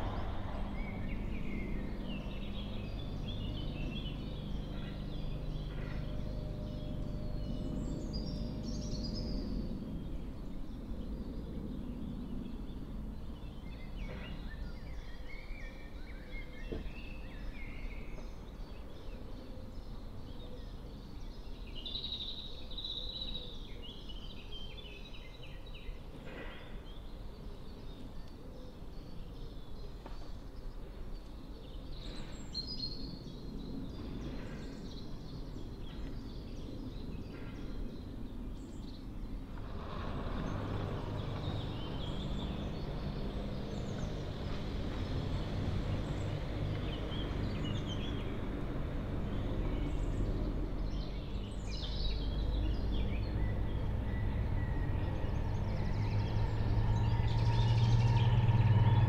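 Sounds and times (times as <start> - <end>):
diesel locomotive engine hum: 0.0 - 15.2, 39.4 - 59.0
birds chirping: 0.0 - 59.0.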